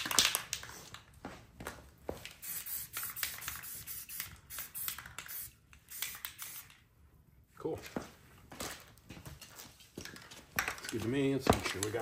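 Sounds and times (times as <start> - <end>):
spray paint can hissing: 2.4 - 6.8.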